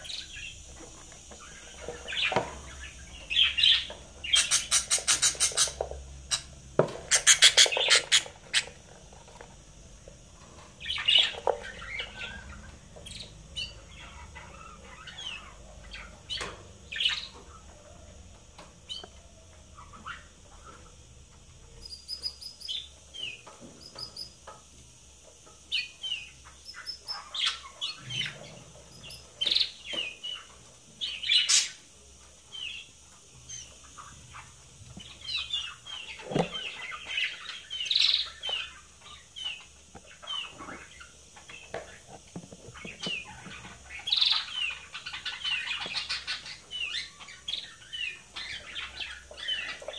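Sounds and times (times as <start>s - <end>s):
budgerigars chirping: 1.3s - 6.5s, 7.1s - 8.8s, 10.8s - 17.4s, 42.7s - 49.9s.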